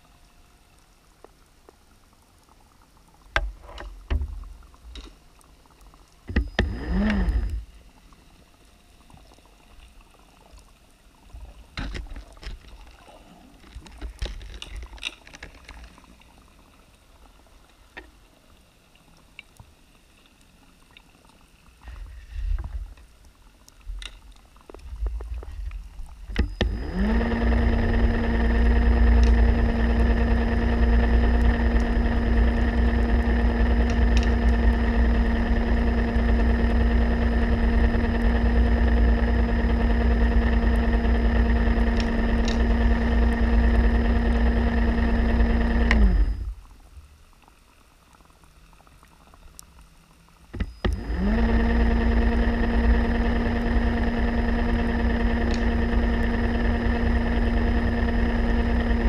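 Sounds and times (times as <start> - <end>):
underwater scooter motor running: 6.2 - 15.4, 24.1 - 47.0, 50.3 - 59.0.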